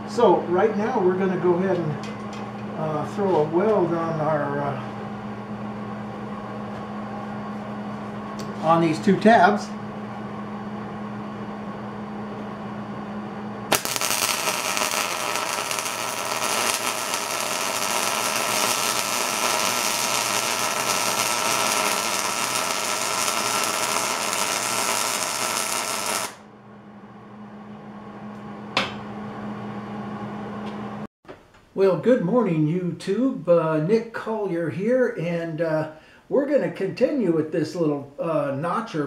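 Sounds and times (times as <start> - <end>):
steady hum: 0.0 - 31.1
sharp welder click: 13.7 - 26.4
welding arc crackling: 13.7 - 26.4.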